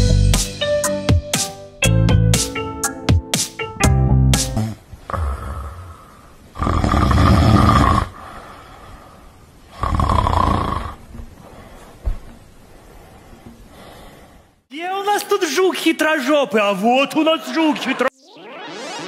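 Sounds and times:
person snoring: 4.6s - 8.9s, 9.7s - 11.0s.

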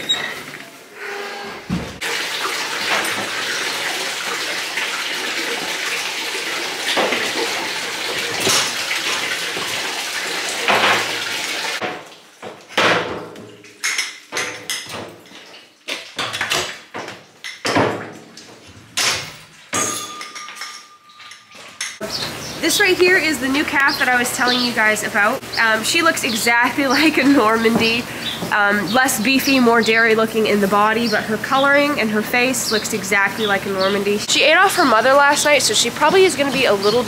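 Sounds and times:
metal milking units clanking: 0.0s - 4.6s, 5.2s - 22.4s, 23.6s - 37.0s
water running: 1.7s - 12.7s, 21.6s - 37.0s.

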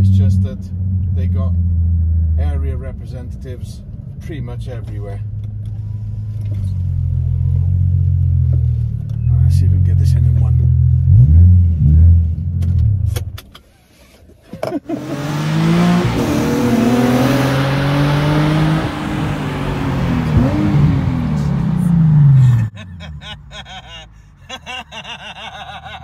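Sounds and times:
car engine revving: 5.6s - 13.4s, 14.7s - 23.4s.

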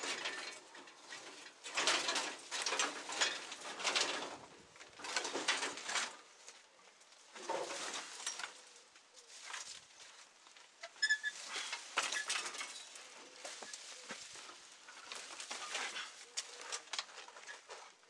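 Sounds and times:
metal bicycle clinking and rattling: 0.0s - 6.2s, 10.9s - 13.0s
leaves and branches rustling: 0.0s - 18.0s.

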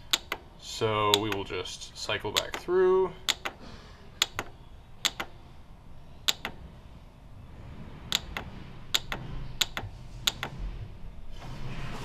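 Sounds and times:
push buttons clicking: 0.0s - 1.6s, 2.2s - 3.6s, 4.2s - 5.4s, 6.2s - 6.6s, 8.1s - 10.6s.

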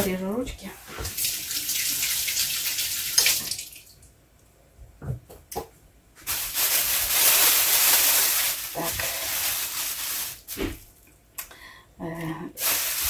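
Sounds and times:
plastic bag rustling: 6.2s - 11.0s, 12.6s - 13.0s.

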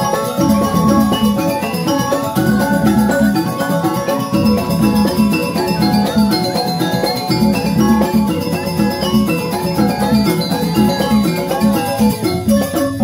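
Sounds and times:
hand drums: 0.0s - 13.0s
mallet-struck keyed instruments: 0.0s - 13.0s.

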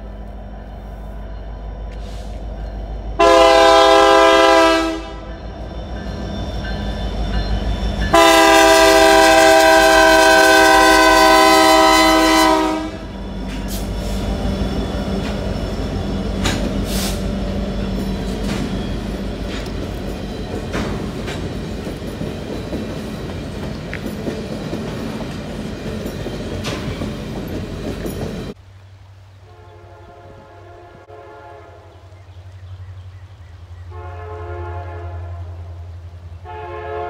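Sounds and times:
diesel locomotive rumble: 0.0s - 28.6s
train air horn blasts: 3.2s - 5.4s, 8.1s - 14.3s, 29.4s - 32.1s, 33.9s - 35.8s, 36.4s - 37.0s
train wheels clickety-clack: 13.3s - 28.6s.

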